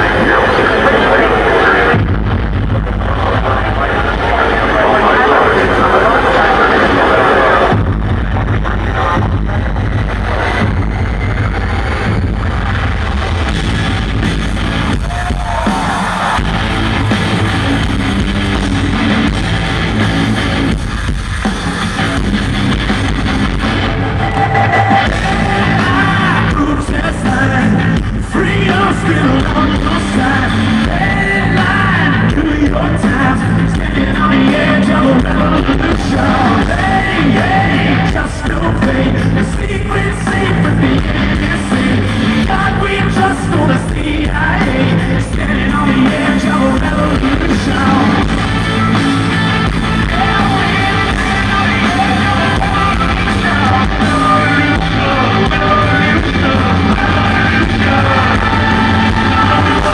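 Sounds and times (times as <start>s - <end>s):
man singing lead vocals: 0.0s - 10.6s, 24.1s - 59.9s
live rock band playing: 0.0s - 59.9s.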